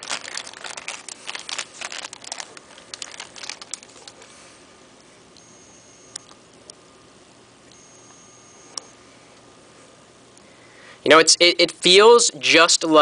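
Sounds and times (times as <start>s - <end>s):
plastic wrapping crinkling: 0.0s - 4.4s.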